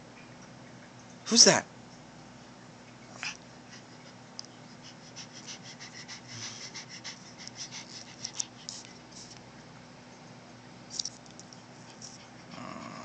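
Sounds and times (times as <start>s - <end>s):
small dog sniffing: 4.7s - 9.4s.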